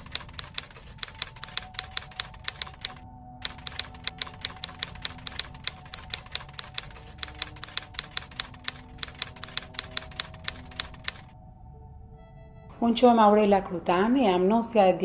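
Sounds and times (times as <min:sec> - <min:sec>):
typewriter keys clicking: 0:00.0 - 0:11.3.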